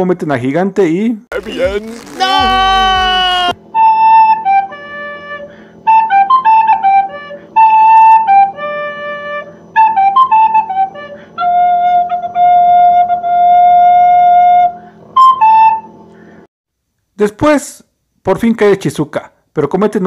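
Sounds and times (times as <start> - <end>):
flute-like wind instrument melody: 1.5 - 16.0.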